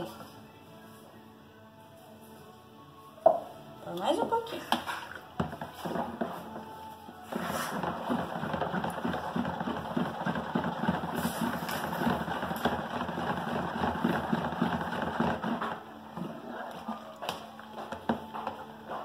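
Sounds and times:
spoon stirring liquid in a bowl: 0:04.7 - 0:06.7.

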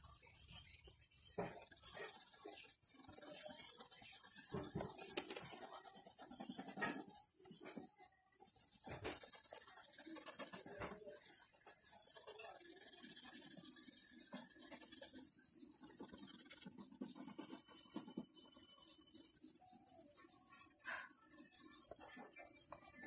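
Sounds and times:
pencil shading on paper: 0:00.0 - 0:23.0.

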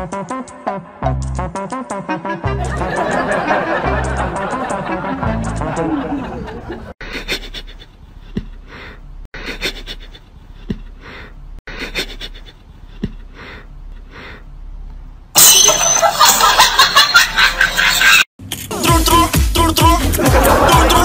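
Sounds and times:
loud music: 0:00.0 - 0:06.3, 0:18.6 - 0:21.0
cat sniffing huffs: 0:07.1 - 0:14.5.

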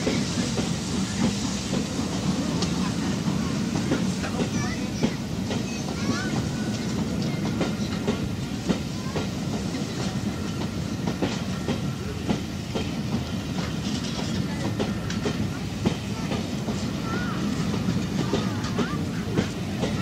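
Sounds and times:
steam train rumble: 0:00.0 - 0:20.0
train clanks and clicks: 0:00.0 - 0:20.0.

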